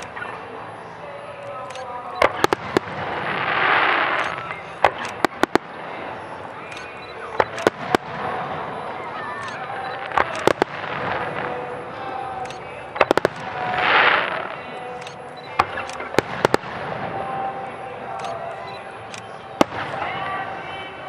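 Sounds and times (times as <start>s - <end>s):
firework shells bursting: 1.8s - 8.4s, 9.4s - 17.4s.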